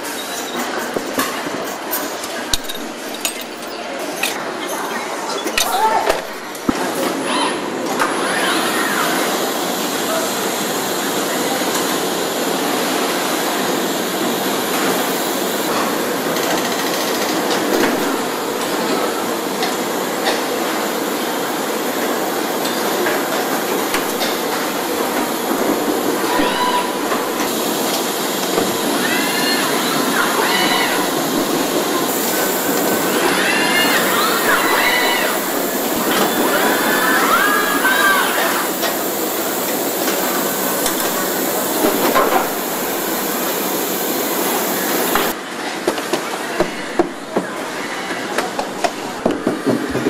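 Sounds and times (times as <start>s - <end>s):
clanks of tools and metal parts: 0.0s - 6.7s
din of machinery and air: 5.5s - 47.3s.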